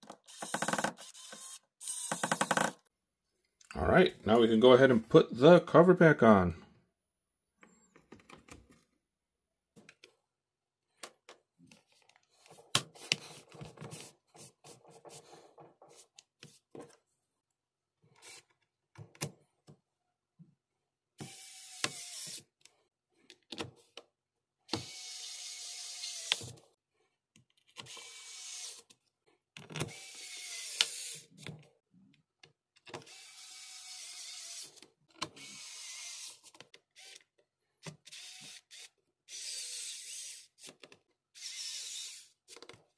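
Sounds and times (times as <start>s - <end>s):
electric screwdriver whirring: 0.2s - 2.8s, 21.2s - 22.4s, 24.7s - 26.5s, 27.9s - 28.8s, 29.8s - 31.3s, 33.1s - 34.8s, 35.4s - 36.4s, 37.0s - 37.2s, 38.1s - 40.7s, 41.4s - 42.3s.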